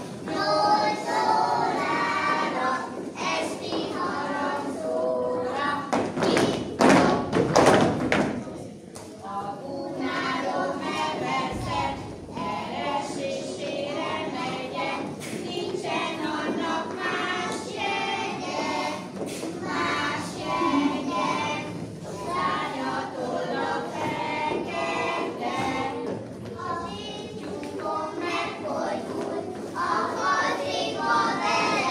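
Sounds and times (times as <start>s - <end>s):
group singing with children: 0.0s - 8.2s, 9.2s - 31.9s.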